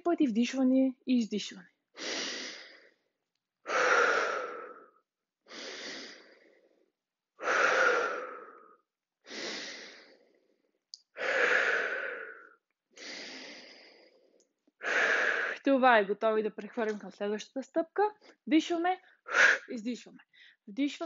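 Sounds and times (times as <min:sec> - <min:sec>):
woman breathing deliberately: 0:01.9 - 0:15.7, 0:19.0 - 0:19.7, 0:20.3 - 0:20.7.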